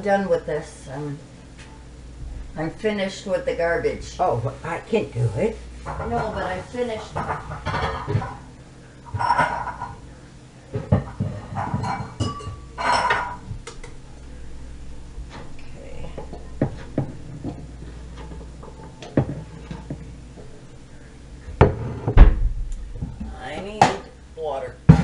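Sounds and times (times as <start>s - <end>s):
dishes and utensils clinking: 5.8s - 8.4s, 9.1s - 10.0s, 10.7s - 13.5s.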